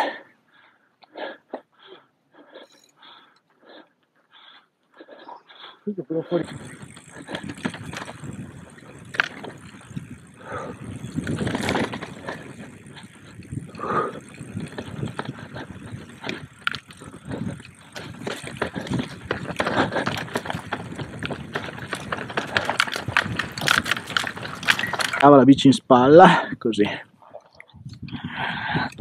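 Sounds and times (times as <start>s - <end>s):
footsteps on stony trail: 6.4s - 25.2s
bike rattling over stones: 6.4s - 25.7s.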